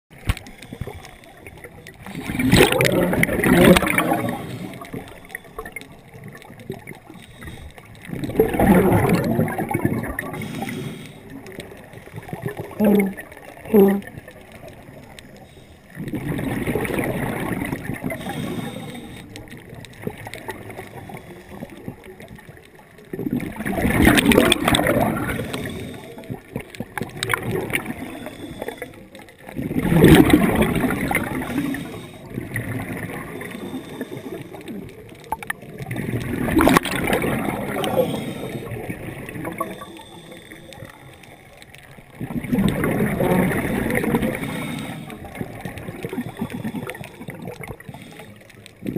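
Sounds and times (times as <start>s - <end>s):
scuba regulator bubbles gurgling: 0.1s - 48.9s.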